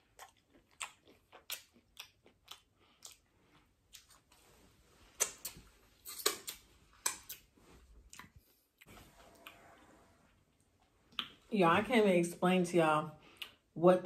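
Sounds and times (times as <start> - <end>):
wet mouth clicks and smacks: 0.0 - 3.3, 5.2 - 7.5, 11.1 - 11.4
person chewing food: 0.0 - 11.4, 13.2 - 13.7.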